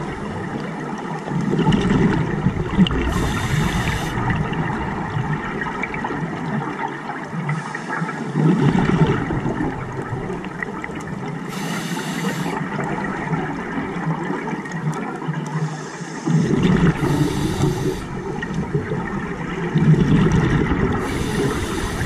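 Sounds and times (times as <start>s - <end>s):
gurgling exhaled bubbles: 0.0s - 22.0s
hissing regulator inhales: 3.1s - 4.3s, 11.5s - 12.6s, 15.6s - 18.2s, 21.0s - 22.0s.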